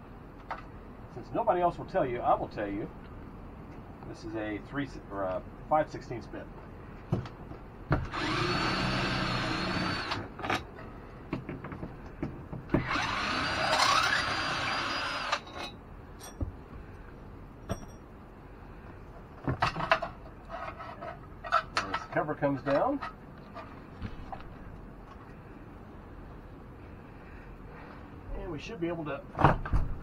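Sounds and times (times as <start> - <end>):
cordless drill running: 8.1 - 10.3, 12.8 - 15.5.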